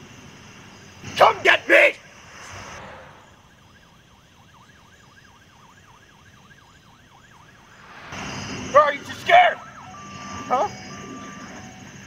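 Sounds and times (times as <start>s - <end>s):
brief rush of noise: 2.0s - 3.4s, 7.7s - 9.0s
faint siren yelping: 3.1s - 12.0s.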